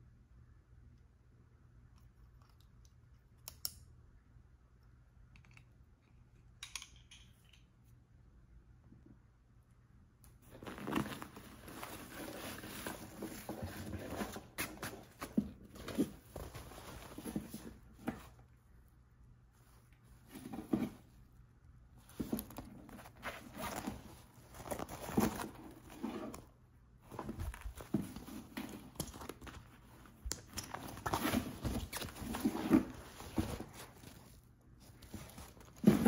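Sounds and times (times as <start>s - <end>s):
backpack fabric rustling: 10.5s - 18.2s, 22.1s - 36.0s.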